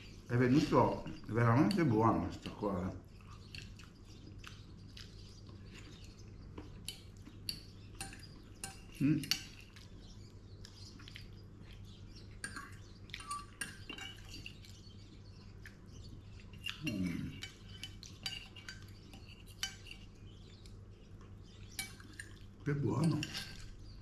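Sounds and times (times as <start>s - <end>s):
cutlery scraping on plate: 6.9s - 9.8s, 12.4s - 14.8s, 16.5s - 20.2s, 23.0s - 23.8s.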